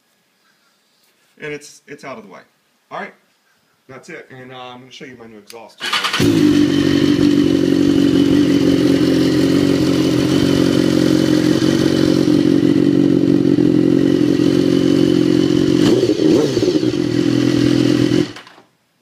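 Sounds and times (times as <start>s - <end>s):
motorcycle engine idling: 6.1s - 18.5s.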